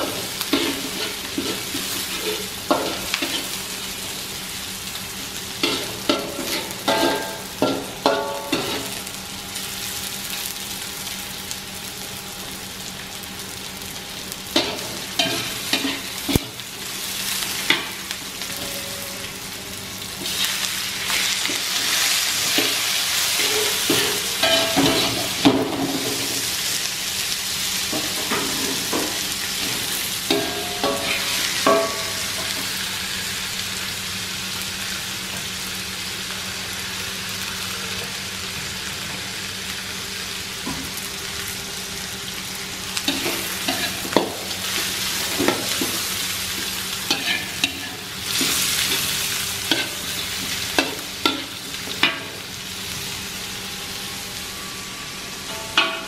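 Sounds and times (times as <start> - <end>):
shrimp sizzling in oil: 0.0 - 56.0
metal spatula scraping a wok: 0.5 - 3.6, 43.1 - 45.9, 47.1 - 51.6.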